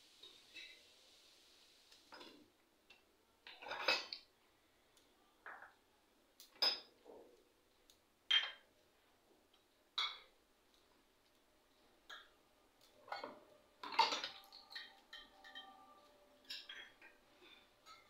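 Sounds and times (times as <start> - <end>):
metal bowls clinking: 3.5 - 4.2, 12.9 - 18.0.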